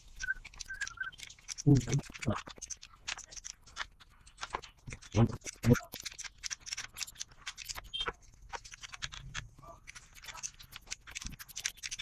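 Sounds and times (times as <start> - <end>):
low voice sounds: 1.7 - 2.4.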